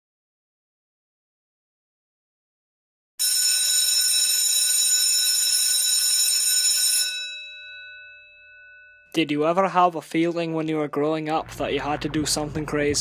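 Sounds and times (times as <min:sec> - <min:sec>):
electric bell ringing: 0:03.2 - 0:09.1.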